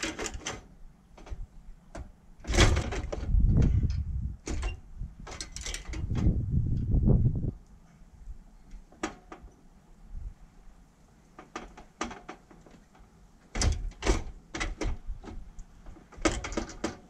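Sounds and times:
metal parts knocking and clattering: 16.1s - 17.0s.

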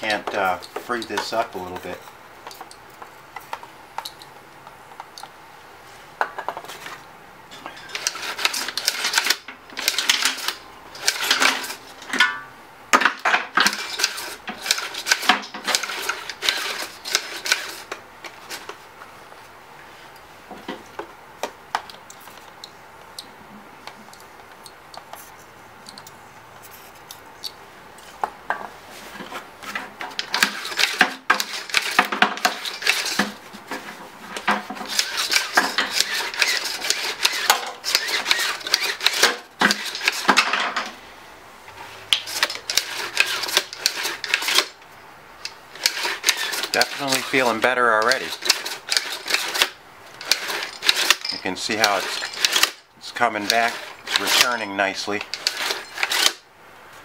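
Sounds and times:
recoil starter clicking and rattling: 7.9s - 11.7s, 30.1s - 33.4s, 34.5s - 40.6s, 48.0s - 52.8s, 55.2s - 56.4s.

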